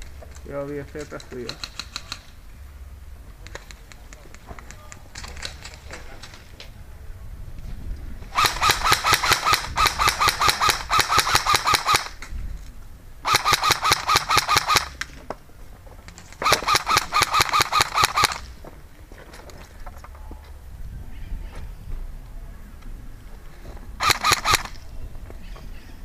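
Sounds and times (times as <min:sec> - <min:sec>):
airsoft gun firing bursts: 0:01.3 - 0:02.4, 0:08.3 - 0:12.2, 0:13.2 - 0:15.0, 0:16.4 - 0:18.6, 0:24.0 - 0:24.8.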